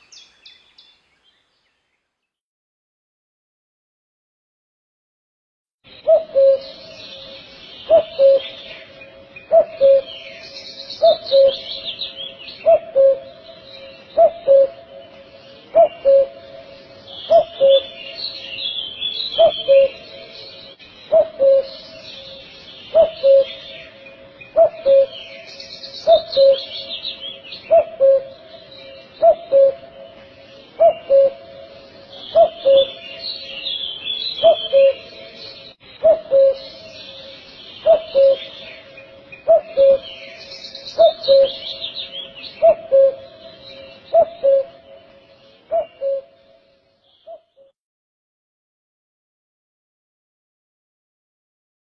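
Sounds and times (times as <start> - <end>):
small birds chirping: 0.0 - 2.4, 5.8 - 47.7
cuckoo calling: 5.9 - 47.7.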